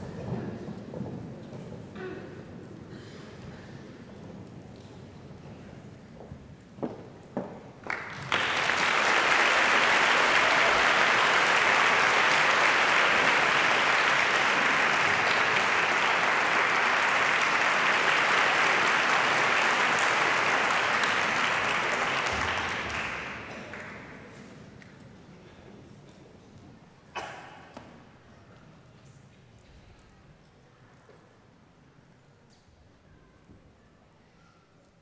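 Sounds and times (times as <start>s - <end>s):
audience applauding: 7.8s - 24.4s.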